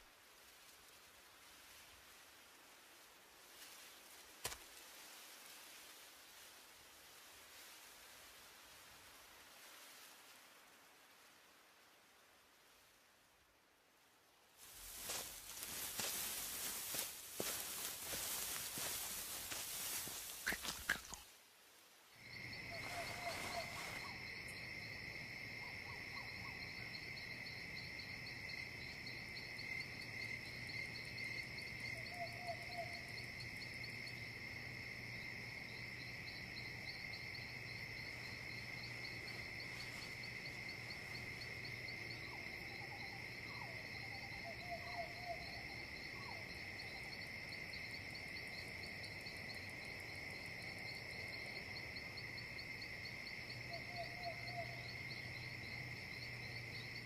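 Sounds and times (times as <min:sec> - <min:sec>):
insects trilling: 0:14.6 - 0:21.4, 0:22.1 - 0:57.0
short animal calls: 0:20.0 - 0:21.3.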